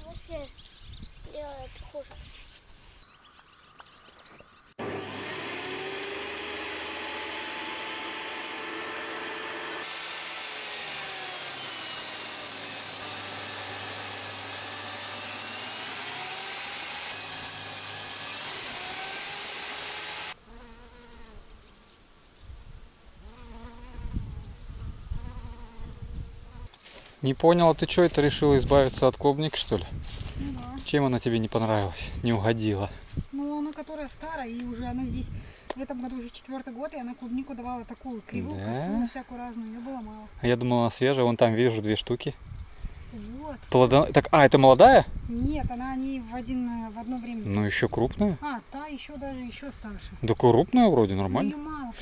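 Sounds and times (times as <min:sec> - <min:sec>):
electric saw cutting wood: 0:04.8 - 0:20.4.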